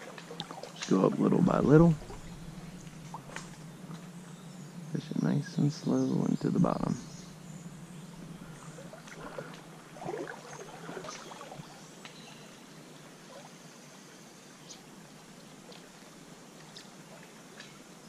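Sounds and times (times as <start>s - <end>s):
water splashes: 0.0s - 3.6s, 8.7s - 12.0s
creek water running: 0.0s - 18.0s.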